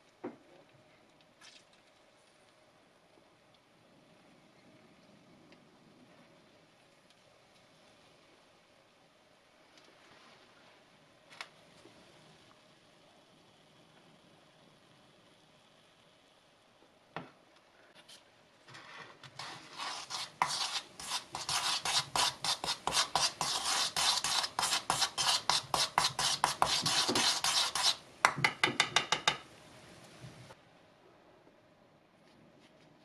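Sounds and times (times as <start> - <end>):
spoon scraping a bowl: 18.7 - 28.4.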